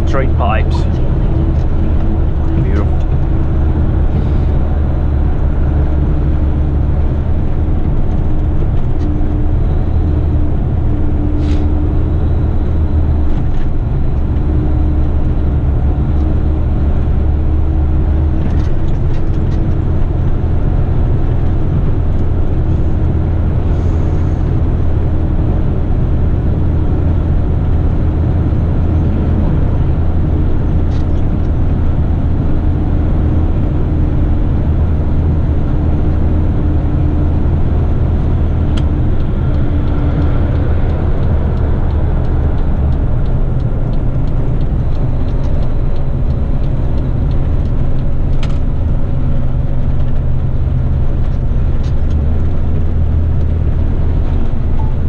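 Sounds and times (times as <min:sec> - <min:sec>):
truck diesel engine running: 0:00.0 - 0:55.0
tyre and road noise: 0:00.0 - 0:55.0.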